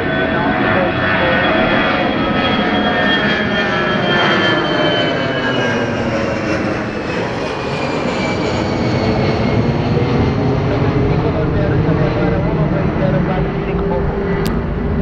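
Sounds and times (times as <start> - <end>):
jet engines running: 0.0 - 15.0.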